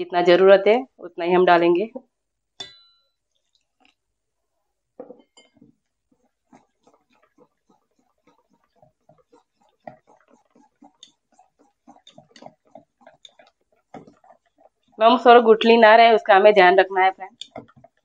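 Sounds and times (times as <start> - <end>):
wire whisk beating in steel bowl: 2.6 - 3.9, 5.0 - 18.0.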